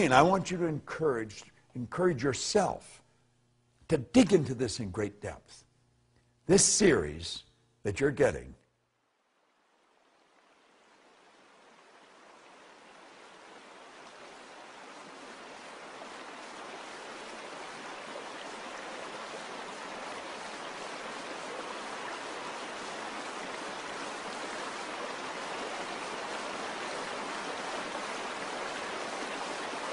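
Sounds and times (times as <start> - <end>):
running water rushing: 0.0 - 2.8, 9.0 - 29.9.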